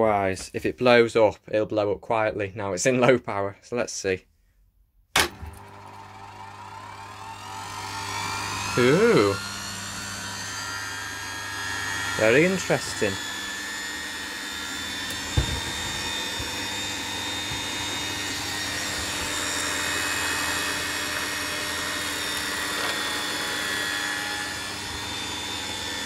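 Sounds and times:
vacuum cleaner motor whine: 5.2 - 26.0.

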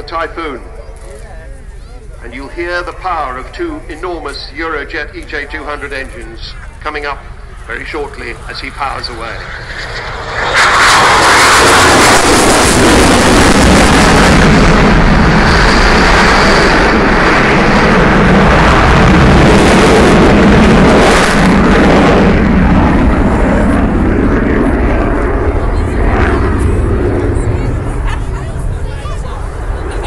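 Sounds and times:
loud jet engine noise: 0.0 - 30.0.

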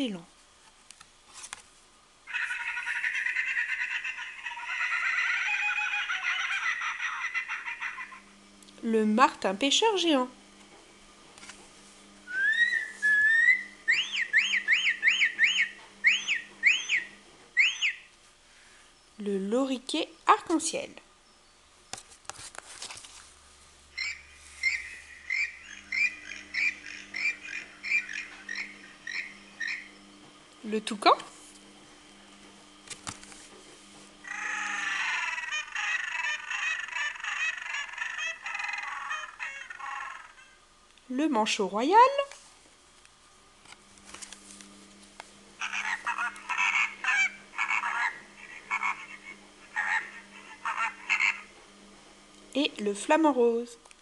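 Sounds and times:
kingfisher call through small speaker: 12.5 - 18.1, 24.0 - 29.9, 34.3 - 40.4.

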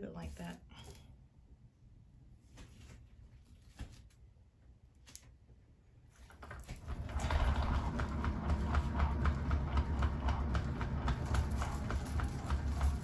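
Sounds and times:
turntable spinning with low rumble: 6.4 - 13.0.

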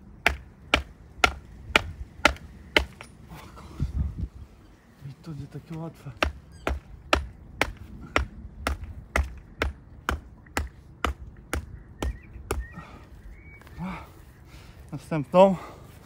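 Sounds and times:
hammer driving wooden stake: 0.2 - 3.2, 6.2 - 12.6.

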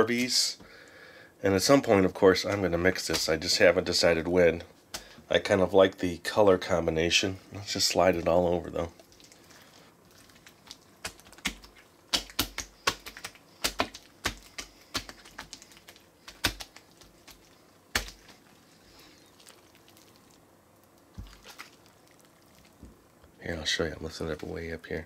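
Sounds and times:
sticky pops of squished slime beads: 10.4 - 18.4.

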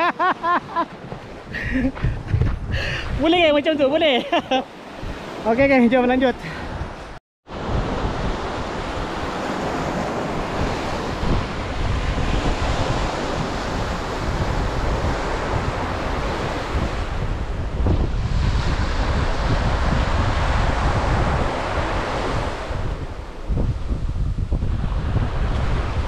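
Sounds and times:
wind on microphone: 0.0 - 4.0, 4.9 - 26.0
surf washing onto beach: 7.5 - 26.0.

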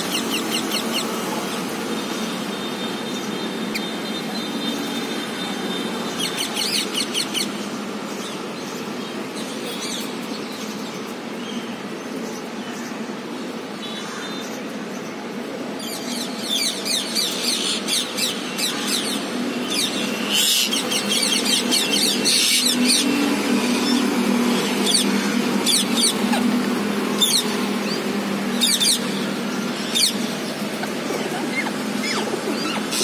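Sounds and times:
parakeets calling: 0.0 - 2.3, 5.6 - 10.0, 15.8 - 33.0.

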